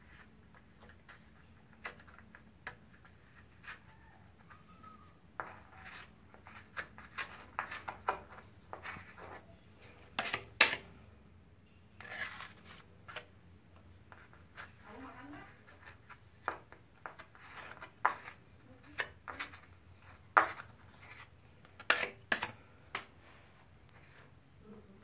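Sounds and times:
putty knife scraping and tapping: 5.4 - 10.9, 12.0 - 13.3, 20.3 - 23.1.

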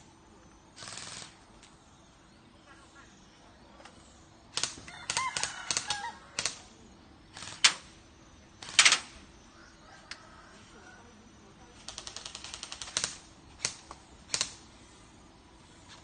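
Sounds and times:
airsoft guns firing: 0.8 - 1.4, 4.5 - 6.7, 7.3 - 7.9, 8.6 - 9.2, 11.8 - 14.6.

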